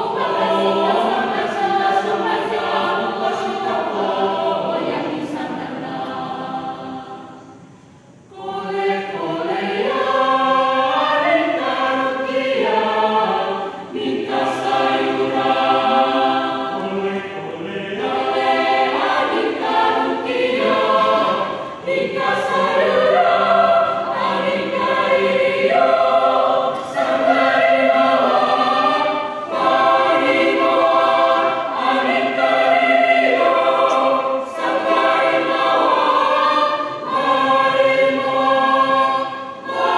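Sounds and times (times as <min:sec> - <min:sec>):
mixed choir singing: 0:00.0 - 0:39.9.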